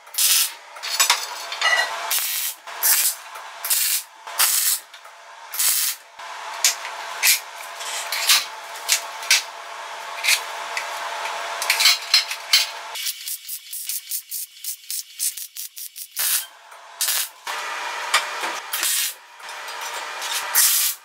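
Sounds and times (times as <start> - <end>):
steady background hum: 0.0 - 15.2, 16.0 - 21.0
welder arc crackling: 2.1 - 11.7, 12.9 - 19.2, 20.3 - 21.0.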